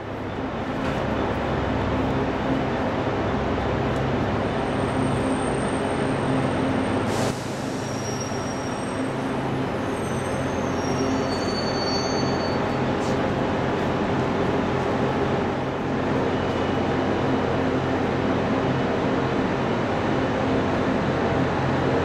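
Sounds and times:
diesel engines droning: 0:00.0 - 0:22.0
high wheel squeals: 0:07.6 - 0:13.2.

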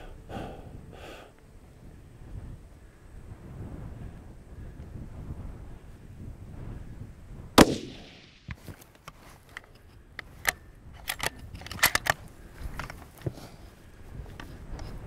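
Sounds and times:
low wind rumble: 0:00.0 - 0:15.0
rifle shot: 0:07.6 - 0:08.6
sharp clicks and knocks: 0:10.4 - 0:13.4.

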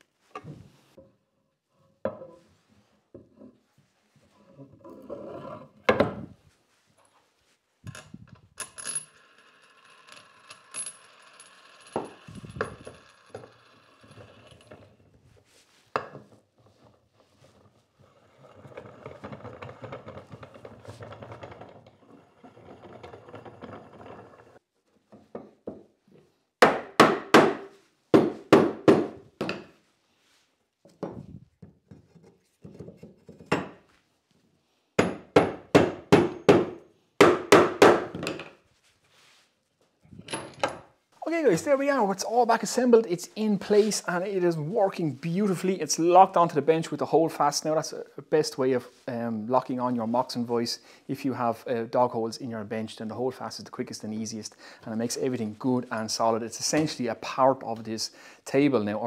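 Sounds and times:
metal clinking and ringing: 0:07.9 - 0:14.8.

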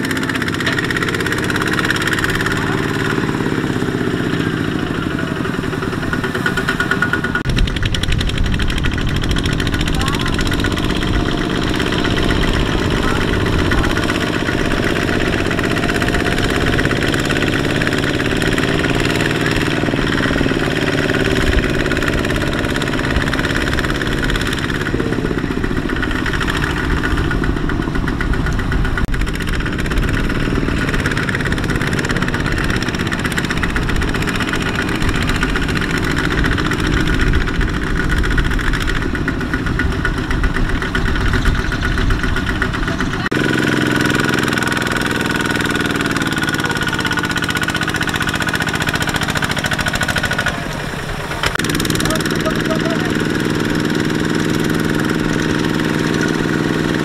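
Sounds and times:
diesel tiller engine running: 0:00.0 - 0:57.0.

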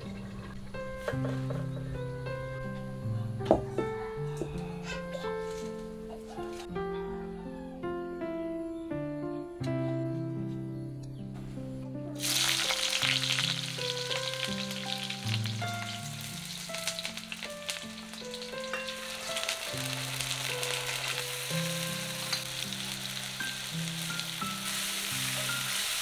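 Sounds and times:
soft background music: 0:00.0 - 0:26.0
food sizzling in hot oil: 0:12.2 - 0:26.0.

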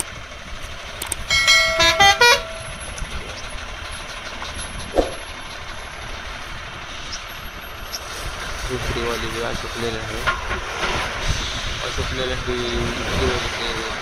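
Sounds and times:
truck engine and road noise: 0:00.0 - 0:14.0
truck horn toots: 0:01.3 - 0:03.0.

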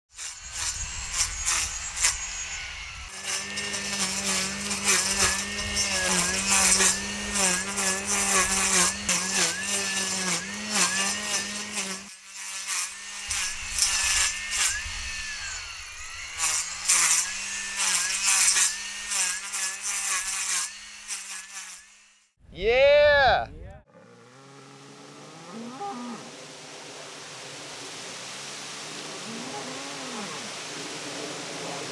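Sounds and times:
brush cutter engine: 0:00.1 - 0:22.2
grass swishing and crackling: 0:03.1 - 0:15.5.

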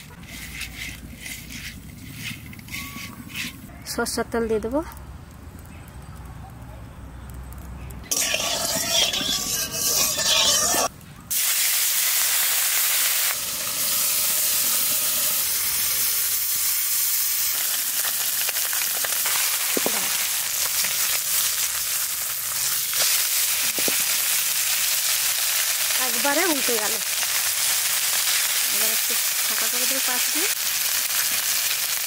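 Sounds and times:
fish sizzling in hot oil: 0:08.0 - 0:32.0.

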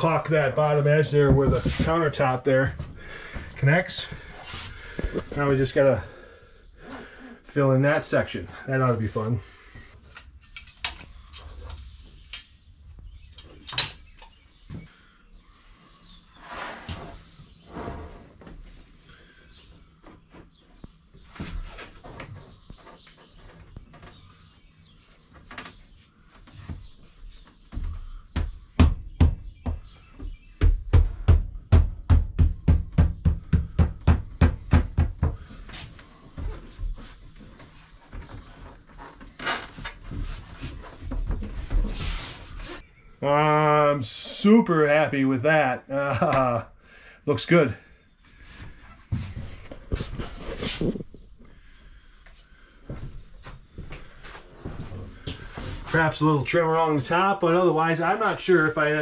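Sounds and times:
quick regular thumps: 0:00.3 - 0:05.8, 0:26.6 - 0:37.5, 0:48.5 - 0:51.6.

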